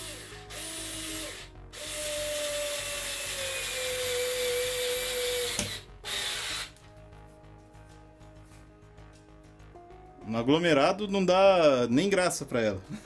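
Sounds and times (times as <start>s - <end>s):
cordless screwdriver whirring: 0.0s - 6.7s.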